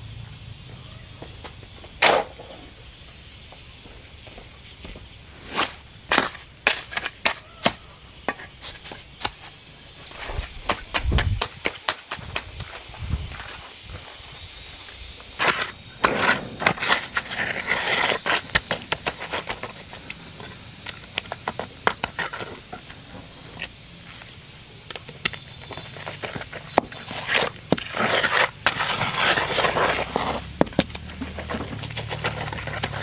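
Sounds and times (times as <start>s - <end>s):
float scraping wet concrete: 5.4s - 9.5s, 15.4s - 24.2s, 25.3s - 33.0s.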